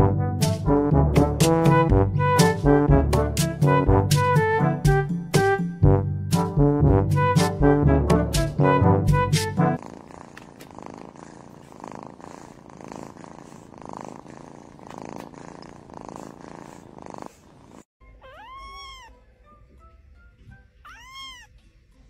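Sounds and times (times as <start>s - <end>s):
brush scratching through fur: 9.8s - 17.9s
cat purring: 9.8s - 17.9s
kitten meowing: 18.2s - 19.2s, 20.8s - 21.5s.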